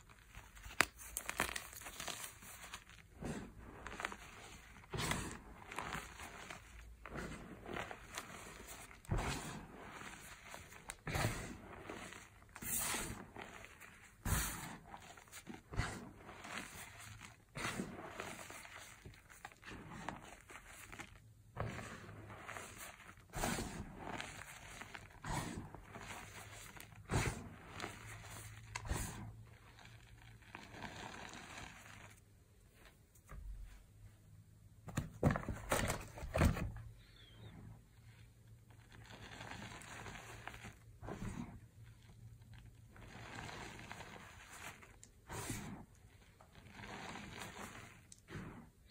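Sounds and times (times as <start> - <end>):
hands crunching powdered chalk: 0.0 - 32.2.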